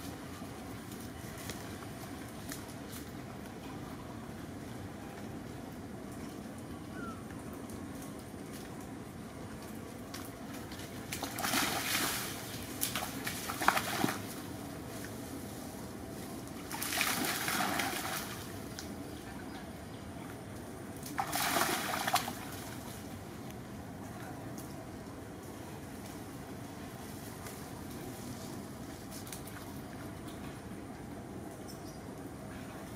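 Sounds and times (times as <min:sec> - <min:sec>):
low background hiss: 0:00.0 - 0:32.9
monkeys splashing through puddle: 0:10.6 - 0:14.5, 0:16.6 - 0:18.9, 0:21.0 - 0:23.1.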